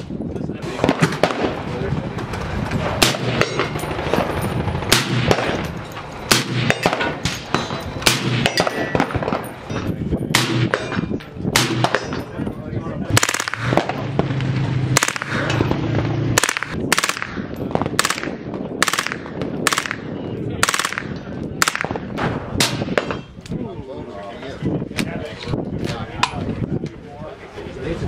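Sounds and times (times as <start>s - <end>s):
rifle shots: 0.6s - 1.8s, 2.8s - 9.5s, 10.3s - 12.3s, 13.1s - 23.2s.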